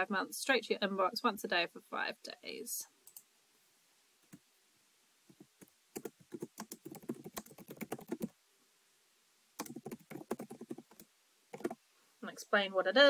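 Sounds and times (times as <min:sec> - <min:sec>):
typing on computer keyboard: 0:06.0 - 0:08.3, 0:09.6 - 0:11.8.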